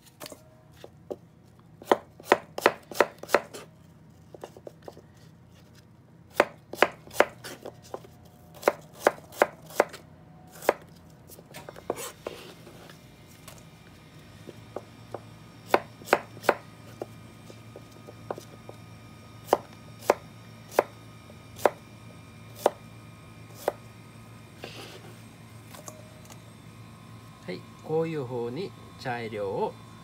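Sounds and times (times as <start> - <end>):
knife chopping on plastic board: 1.8 - 3.7, 6.3 - 8.0, 15.7 - 16.6.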